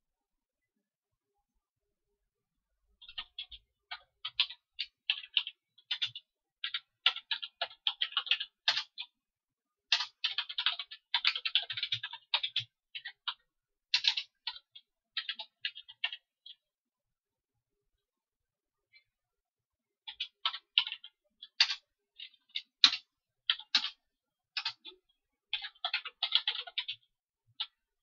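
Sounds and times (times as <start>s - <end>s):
typing on computer keyboard: 3.0s - 9.2s, 9.9s - 16.6s, 20.0s - 27.8s.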